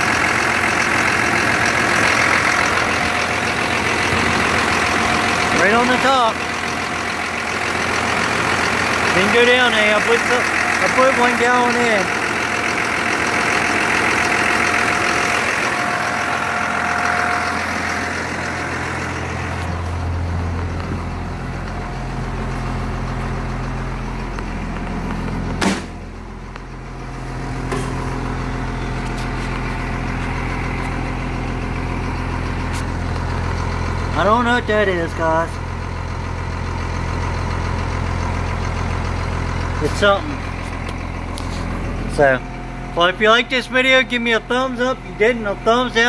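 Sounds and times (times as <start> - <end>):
bus engine idling: 0.0 - 46.0
engine high whine: 0.0 - 46.0
sharp engine knock: 24.7 - 26.1.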